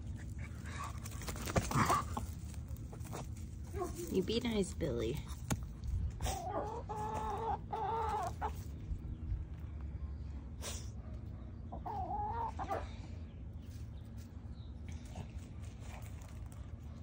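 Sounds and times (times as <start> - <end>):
chickens calling: 0.0 - 4.2, 6.0 - 14.8
steady low rumble: 0.0 - 11.7.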